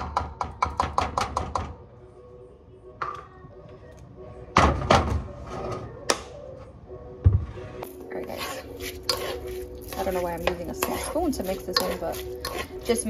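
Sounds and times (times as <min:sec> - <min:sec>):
scraping in a pot: 0:07.7 - 0:13.0.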